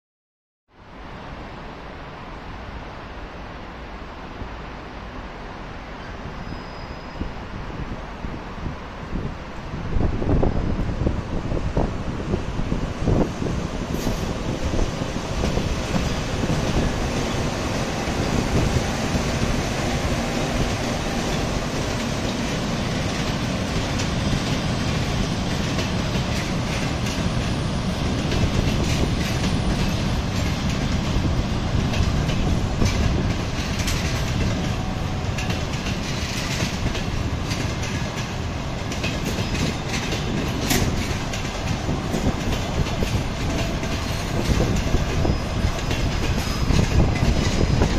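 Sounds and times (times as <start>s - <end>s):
train wheels rumbling on rail: 1.0s - 47.9s
wheels clicking over rail joints: 14.0s - 47.9s.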